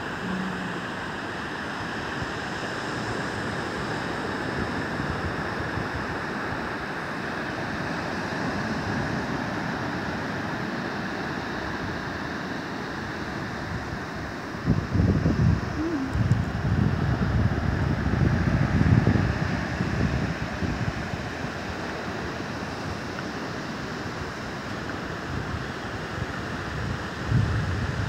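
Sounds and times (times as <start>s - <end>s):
ocean surf on beach: 0.0s - 28.0s.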